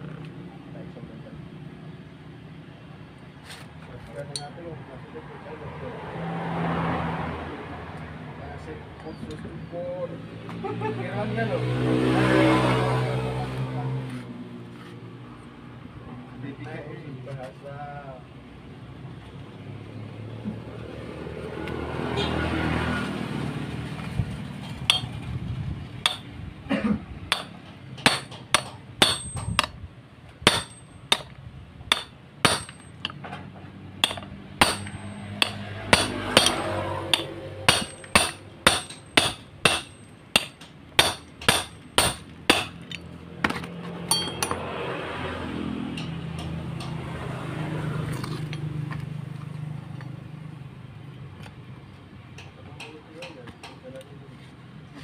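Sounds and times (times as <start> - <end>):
hammer striking metal: 24.9 - 25.2, 26.0 - 26.3, 27.3 - 29.8, 30.4 - 33.2, 34.0 - 43.0, 44.1 - 44.8.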